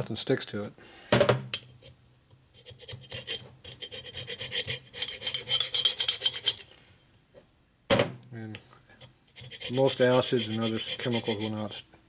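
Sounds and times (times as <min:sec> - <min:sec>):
scraper blade scraping metal: 0:02.6 - 0:06.6, 0:09.4 - 0:11.6.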